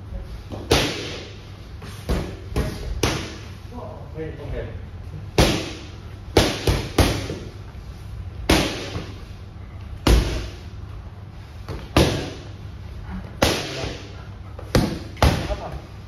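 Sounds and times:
boxing gloves hitting mitts: 0.5s - 3.5s, 5.4s - 7.6s, 8.4s - 9.2s, 10.0s - 10.6s, 11.6s - 12.6s, 13.4s - 15.8s.

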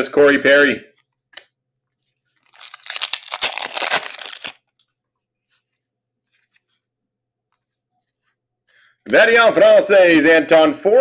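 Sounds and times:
foil wrapper tearing and crinkling: 2.4s - 4.6s.

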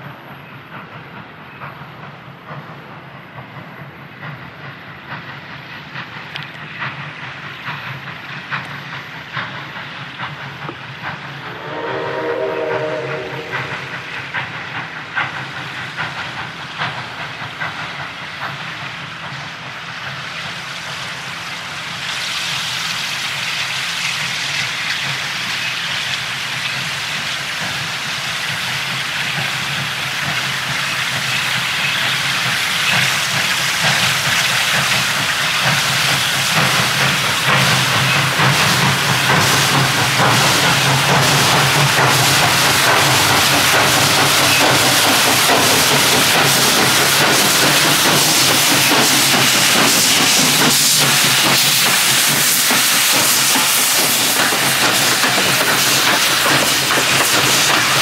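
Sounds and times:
steam hissing: 0.7s - 58.0s
steam locomotive chord whistle: 11.3s - 14.4s.

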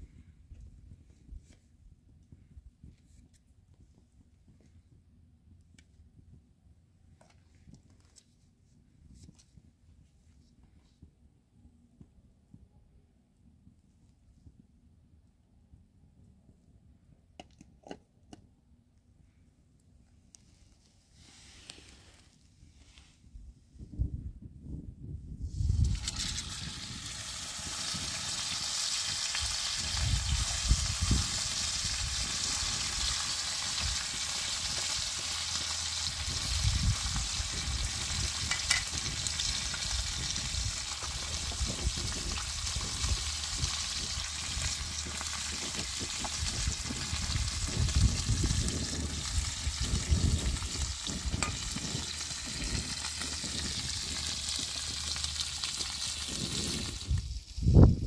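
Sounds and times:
fish sizzling in hot oil: 25.8s - 57.5s.

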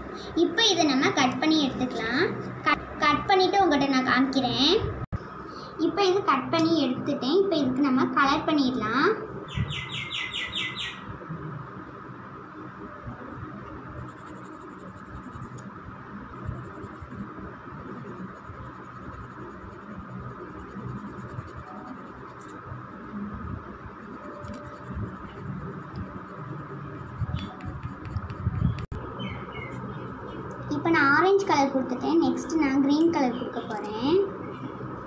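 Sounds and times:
pencil scratching on paper: 14.0s - 15.6s, 16.5s - 17.2s, 17.9s - 22.5s, 24.0s - 28.9s.

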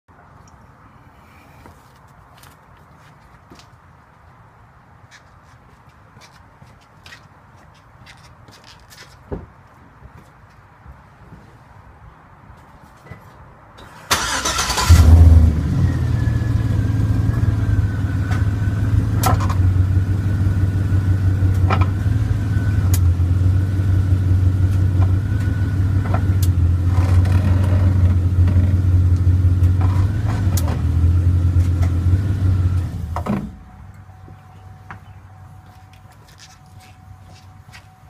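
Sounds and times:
truck engine starting and idling: 13.8s - 34.0s.

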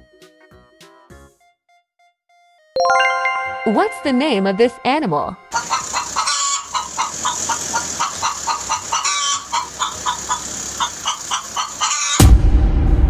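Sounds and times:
chicken clucking: 5.6s - 12.2s
loud boom: 12.2s - 13.0s.

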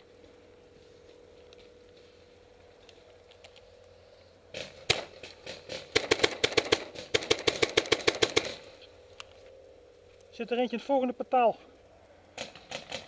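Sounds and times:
paintball marker shots: 4.5s - 8.7s.

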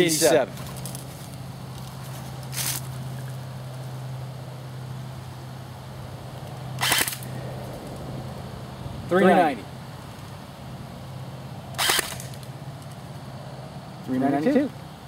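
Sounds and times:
steady low hum: 0.0s - 15.0s
airsoft gun shots: 6.8s - 7.3s, 11.8s - 12.4s.

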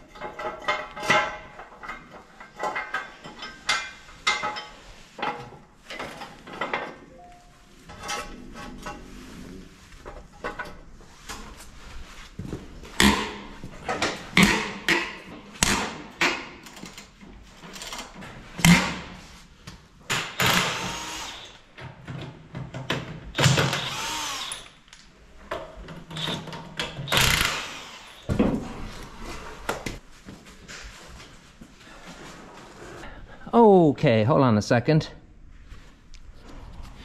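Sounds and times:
tools knocking and clanking: 0.0s - 7.1s, 21.8s - 23.9s
impact wrench undoing nuts: 20.1s - 21.6s, 23.0s - 24.8s, 26.0s - 28.7s.

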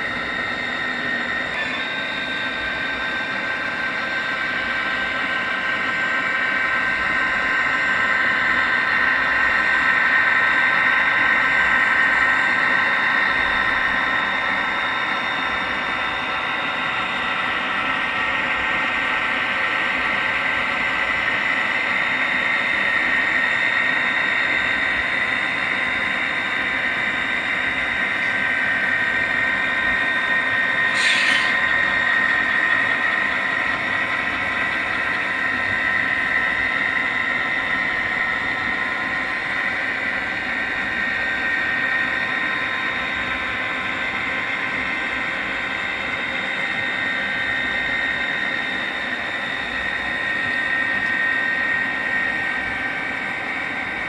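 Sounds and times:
model train motor whine: 0.0s - 54.0s.

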